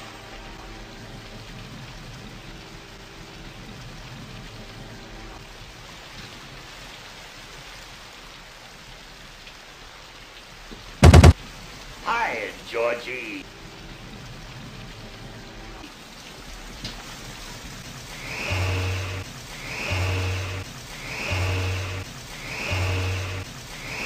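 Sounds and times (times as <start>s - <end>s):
steady rain: 0.0s - 24.0s
water pouring into storm drain: 13.4s - 24.0s.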